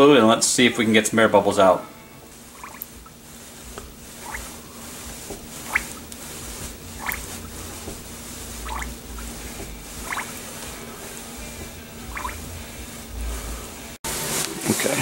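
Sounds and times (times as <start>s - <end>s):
air bubbles blooping in fluid: 2.5s - 3.2s, 4.1s - 4.6s, 5.3s - 6.2s, 6.9s - 9.4s, 10.0s - 10.4s, 12.1s - 12.4s.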